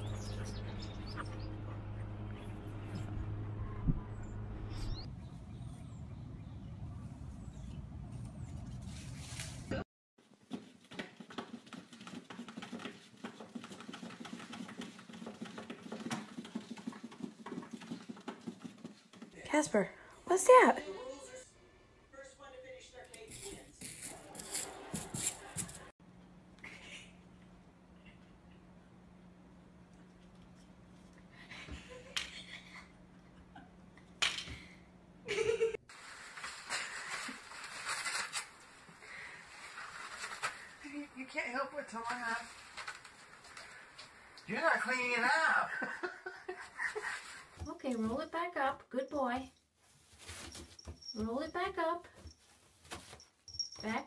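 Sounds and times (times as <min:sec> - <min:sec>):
low hum: 0:00.0 - 0:09.6
cats tearing paper towel: 0:23.2 - 0:25.9, 0:35.9 - 0:44.3
cat pawing at papers: 0:36.0 - 0:40.8.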